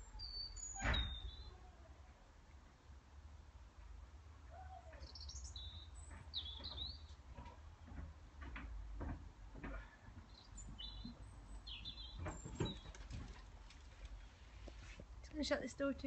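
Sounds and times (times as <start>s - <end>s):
blackbirds chattering calls: 5.0s - 7.2s, 10.2s - 13.3s.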